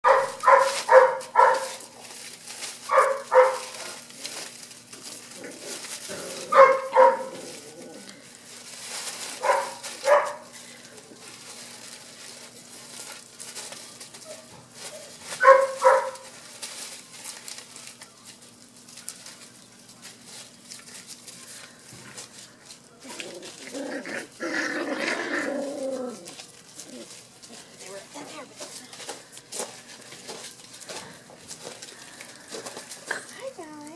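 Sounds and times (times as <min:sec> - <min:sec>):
puppies yipping: 0:00.0 - 0:01.8, 0:02.8 - 0:03.8, 0:06.5 - 0:07.4, 0:09.4 - 0:10.6, 0:14.1 - 0:16.4
paws rustling in leaves: 0:00.0 - 0:33.9.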